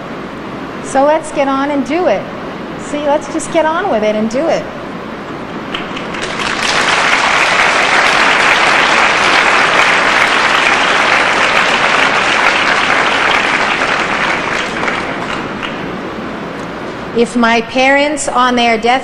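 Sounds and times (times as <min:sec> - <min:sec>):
audience applauding: 0:05.7 - 0:15.9.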